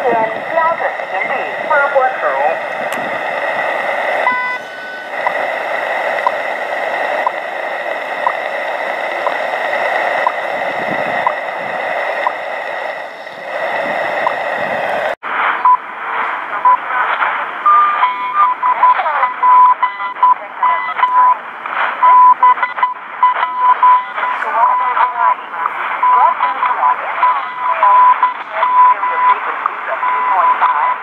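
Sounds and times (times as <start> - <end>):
radio time beeps: 0.0 - 15.9, 16.5 - 31.0
radio static hiss: 0.0 - 31.0
time signal ticks: 22.0 - 25.1.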